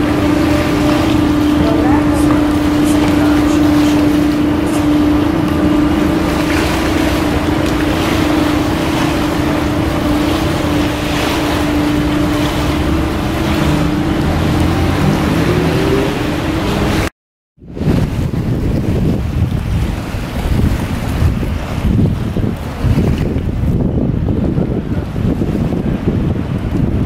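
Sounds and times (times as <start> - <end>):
motor drone: 0.0 - 17.1
river water: 0.0 - 27.0
wind on microphone: 0.0 - 27.0.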